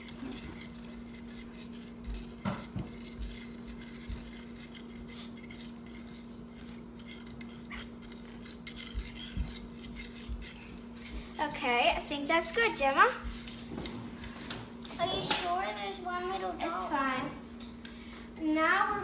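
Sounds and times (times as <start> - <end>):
spoon stirring in plastic cup: 0.0 - 13.7
steady low hum: 0.0 - 19.0.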